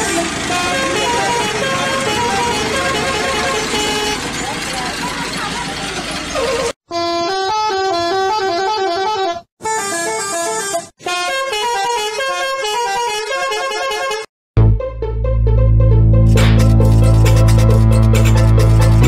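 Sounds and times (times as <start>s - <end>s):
bus musical horn tune: 0.0s - 5.2s, 6.4s - 15.0s.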